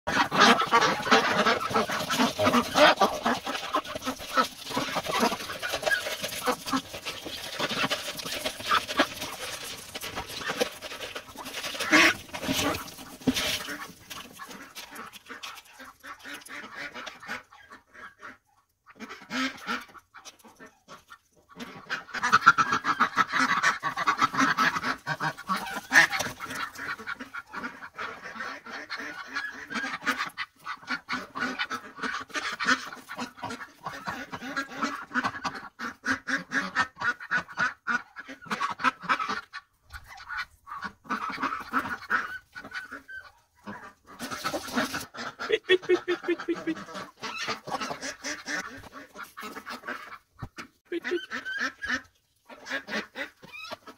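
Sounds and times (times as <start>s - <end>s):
duck bill clatter: 0.1s - 17.4s, 22.6s - 27.6s
rapid duck calls: 0.1s - 21.0s, 21.6s - 53.9s.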